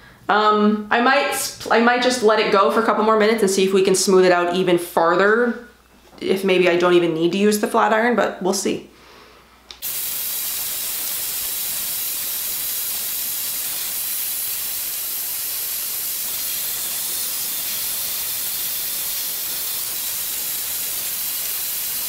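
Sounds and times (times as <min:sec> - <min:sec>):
hair dryer blowing: 0:09.8 - 0:22.0.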